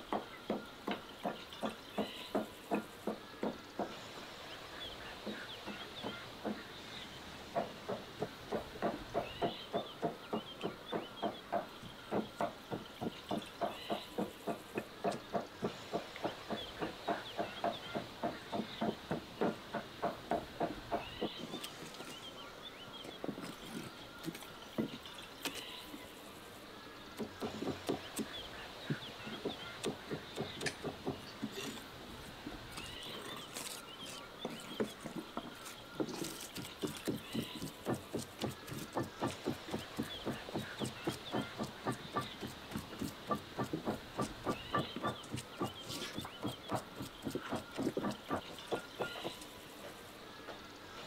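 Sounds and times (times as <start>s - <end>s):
faint birds chirping: 0.0s - 51.0s
cleaver chopping on wooden board: 27.2s - 31.8s, 33.5s - 49.4s.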